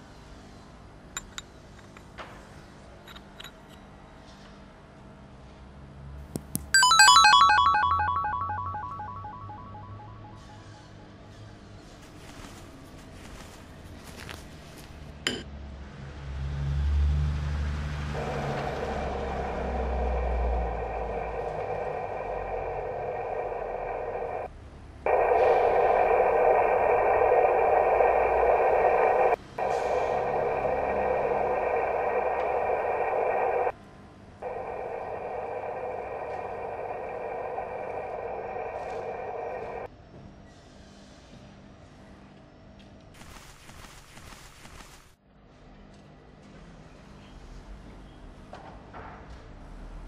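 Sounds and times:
steady low rumble: 18.2s - 24.5s, 25.1s - 33.7s, 34.4s - 39.9s.

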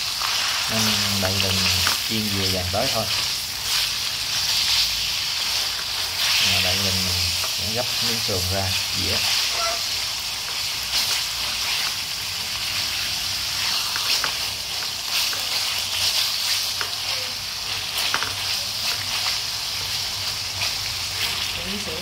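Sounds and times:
meat sizzling in oil: 0.0s - 22.0s.

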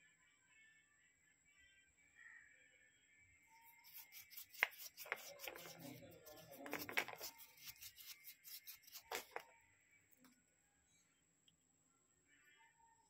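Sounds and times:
hands rubbing a stone: 3.6s - 9.5s
stone clicks: 3.8s - 9.5s.

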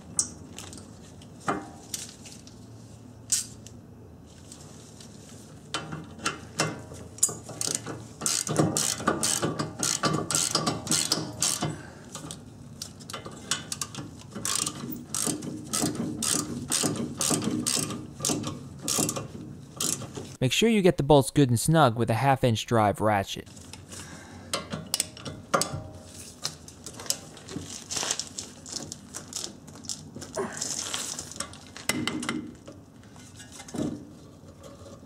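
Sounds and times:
ratchet clicking: 7.2s - 12.3s, 13.1s - 19.2s.

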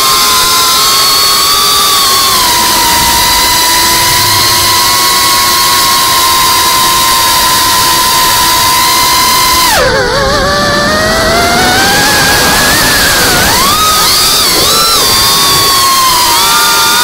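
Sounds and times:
drone motors whining: 0.0s - 17.0s.

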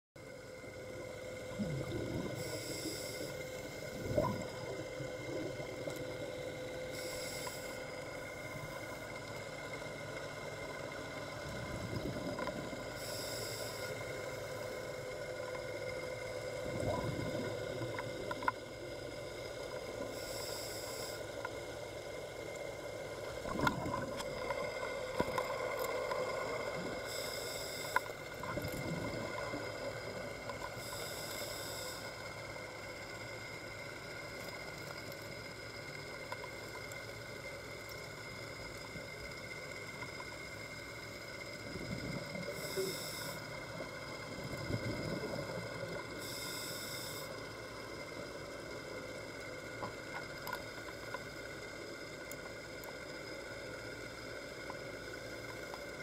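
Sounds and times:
steady hum: 0.2s - 56.0s
regulator hiss on inhalation: 2.3s - 4.0s, 6.9s - 8.0s, 13.0s - 14.7s, 20.1s - 21.4s, 27.0s - 28.2s, 30.8s - 32.3s, 42.5s - 43.6s, 46.2s - 47.5s.

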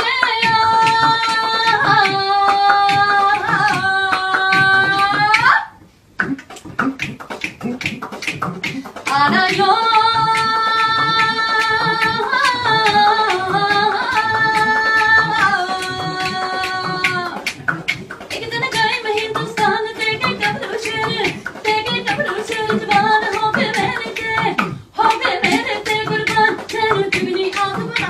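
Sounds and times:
woman singing unaccompanied: 0.0s - 5.8s, 9.0s - 17.5s, 18.3s - 28.0s
people clapping along: 0.0s - 28.0s.

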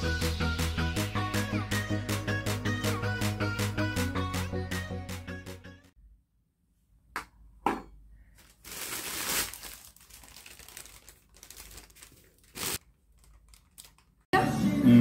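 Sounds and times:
packaging crinkling and rustling: 8.3s - 14.3s.

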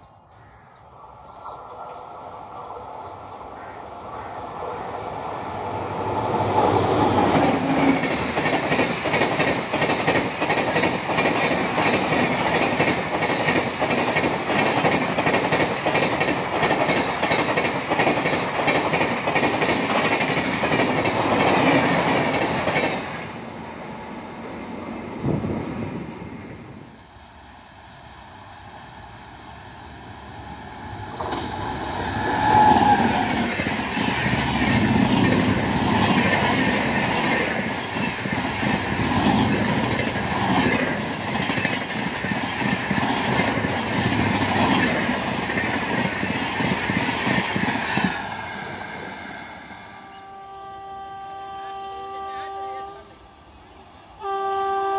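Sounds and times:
train wheels clattering over rail joints: 7.1s - 23.2s, 31.0s - 48.2s.

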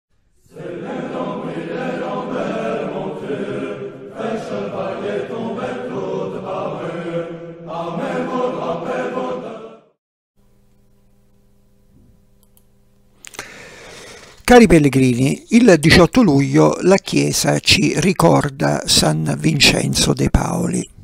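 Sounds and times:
choir chanting: 0.5s - 10.0s
faint electrical hum: 10.4s - 21.0s.

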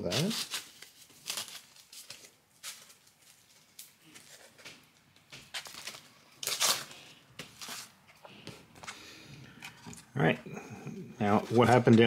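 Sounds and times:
sandpaper tearing: 0.0s - 1.8s.

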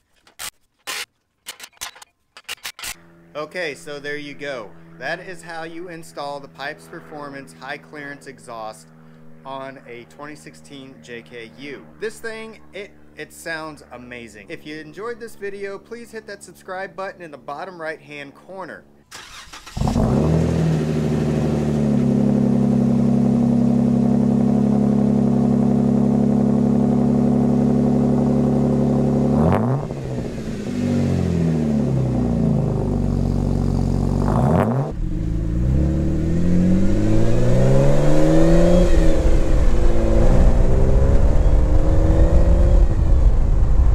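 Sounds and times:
car engine idling and revving: 19.2s - 43.9s.

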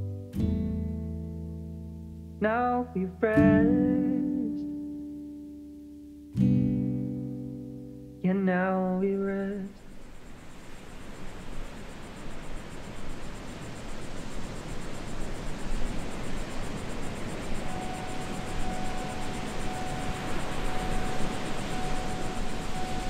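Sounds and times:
rushing outdoor ambience: 8.8s - 23.0s
steady high tone: 9.0s - 23.0s.

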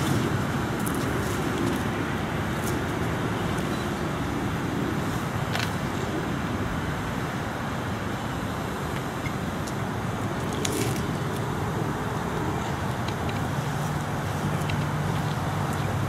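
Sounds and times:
low rumble with hiss: 0.0s - 16.0s.

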